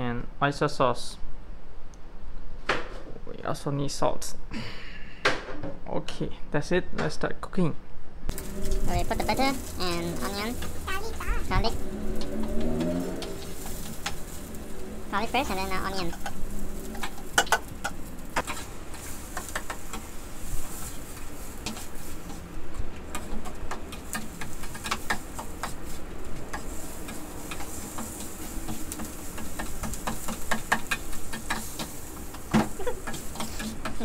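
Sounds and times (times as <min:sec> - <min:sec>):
faint sizzle of sauteing: 0:08.3 - 0:34.0
utensil scraping steel pan: 0:23.1 - 0:34.0.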